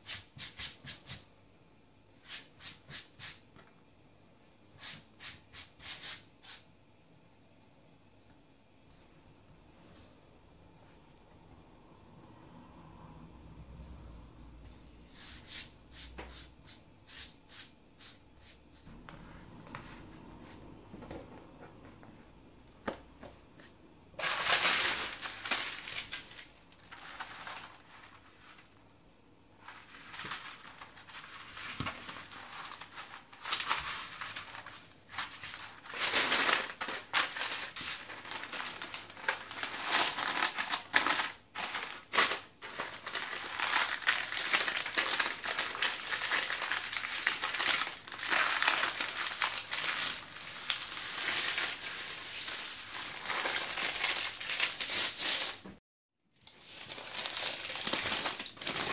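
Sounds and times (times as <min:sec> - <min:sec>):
parchment paper crinkling: 0:24.2 - 0:28.7, 0:29.6 - 0:55.6, 0:56.4 - 0:58.9.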